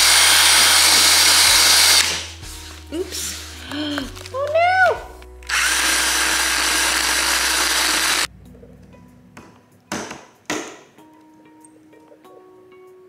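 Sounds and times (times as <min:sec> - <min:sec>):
cordless drill running: 0:00.0 - 0:02.2, 0:05.5 - 0:08.3.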